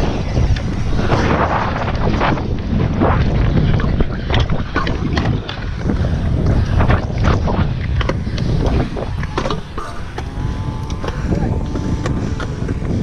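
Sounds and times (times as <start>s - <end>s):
scooter wheels rolling on concrete: 0.0s - 13.0s
wind buffeting microphone: 0.0s - 13.0s
scooter clicks and knocks: 7.7s - 13.0s.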